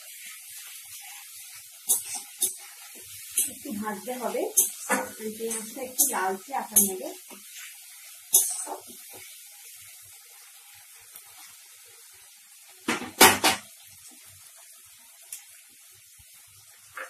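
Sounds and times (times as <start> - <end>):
paste sizzling in oil: 0.0 - 17.0
utensil scraping a pan: 1.9 - 2.6, 6.8 - 9.0.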